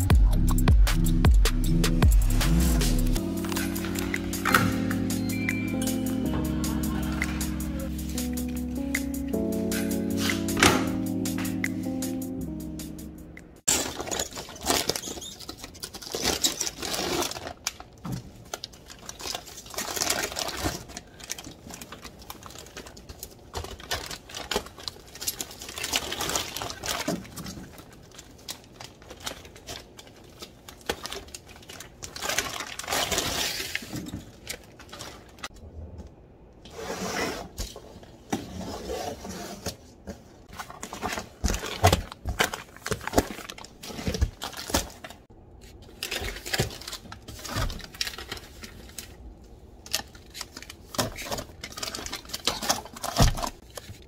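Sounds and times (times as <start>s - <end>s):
packages knocking down: 13.7s - 18.2s
plastic wrap crinkling: 13.7s - 35.5s, 40.5s - 54.0s.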